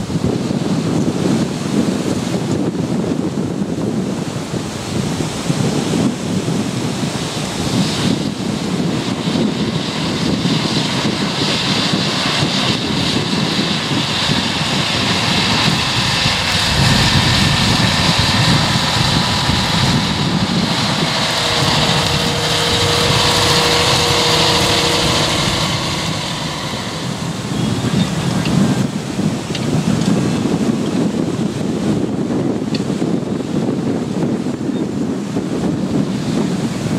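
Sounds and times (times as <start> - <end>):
steady whine: 0.0 - 34.2
wind rumble on microphone: 0.0 - 36.9
tractor diesel engine under load: 7.0 - 30.8.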